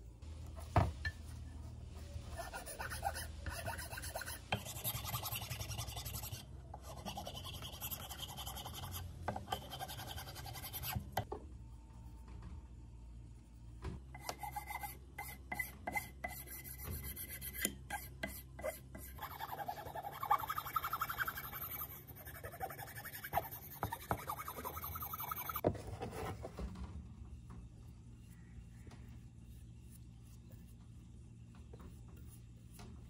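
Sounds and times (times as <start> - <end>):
filing strokes: 2.1 - 11.3, 14.2 - 25.6.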